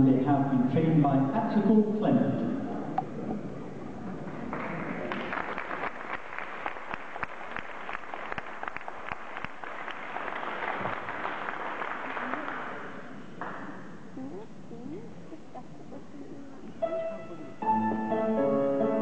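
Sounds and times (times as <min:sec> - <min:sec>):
audience applauding: 0:04.2 - 0:13.7.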